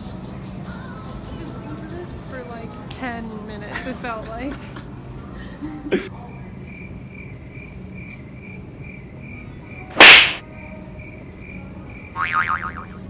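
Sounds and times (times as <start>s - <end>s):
loud sudden burst of noise: 10.0s - 10.4s.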